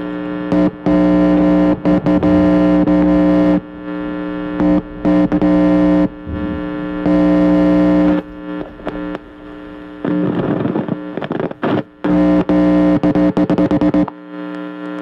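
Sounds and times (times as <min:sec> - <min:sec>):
loud electric buzz: 0:00.0 - 0:15.0
rough crackling noise: 0:01.3 - 0:13.0.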